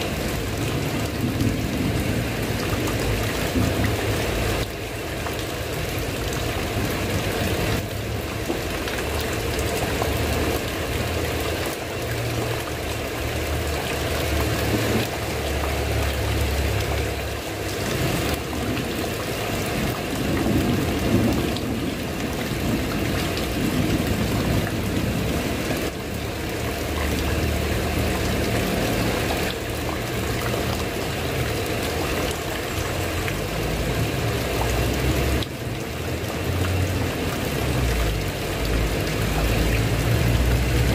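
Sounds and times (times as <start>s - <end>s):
heavy rain on a tiled roof: 0.0s - 40.9s
water pouring and trickling: 0.0s - 40.9s.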